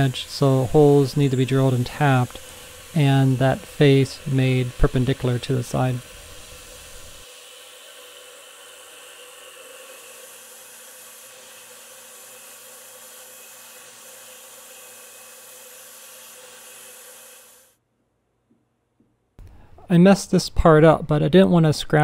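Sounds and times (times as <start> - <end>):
coolant spray hissing: 0.0 - 17.7
milling machine drilling metal: 0.0 - 17.7.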